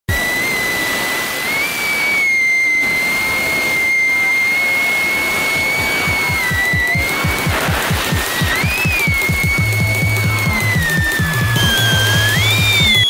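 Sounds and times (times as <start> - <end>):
drone motors whining: 0.1 - 13.0
hiss: 0.1 - 13.0.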